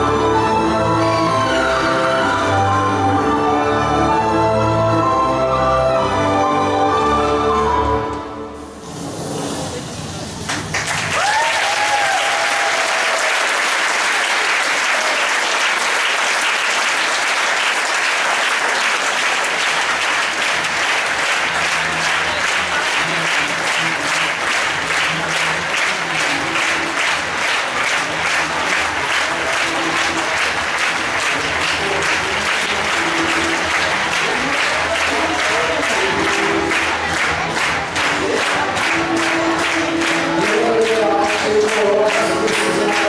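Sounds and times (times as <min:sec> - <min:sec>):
crowd applauding: 0:10.5 - 0:43.0
faint music: 0:19.6 - 0:43.0.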